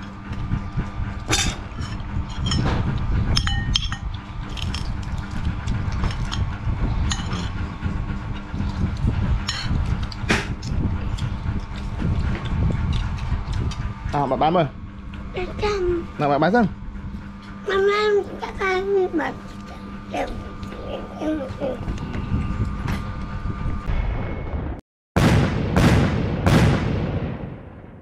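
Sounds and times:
low rumble: 0.0s - 28.0s.

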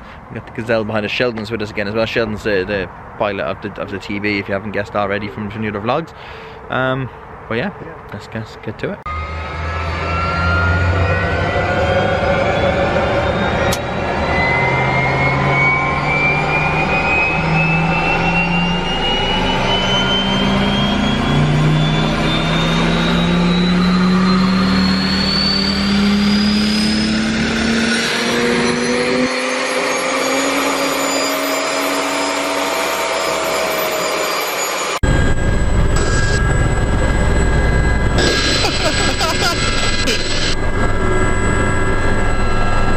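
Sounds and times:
helicopter engine and rotor noise: 9.1s - 42.9s
turbine whine rising: 9.1s - 42.9s.

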